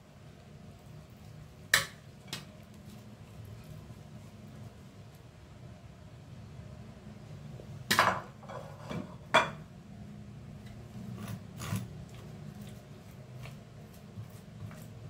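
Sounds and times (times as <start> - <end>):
kitchen utensils knocking and scraping: 7.9 - 9.6.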